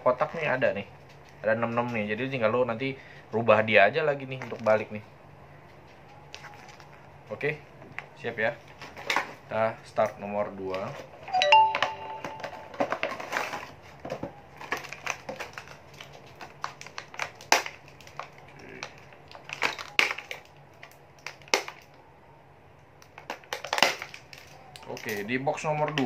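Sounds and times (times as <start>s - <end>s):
plastic toy parts and packaging handled: 4.3s - 4.9s, 8.0s - 22.0s, 23.0s - 26.0s.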